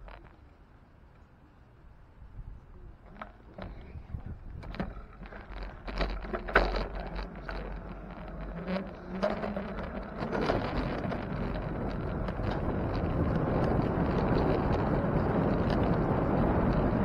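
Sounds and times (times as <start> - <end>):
wind rumble on microphone: 2.1 - 17.0
bicycle clicks and rattles: 3.0 - 17.0.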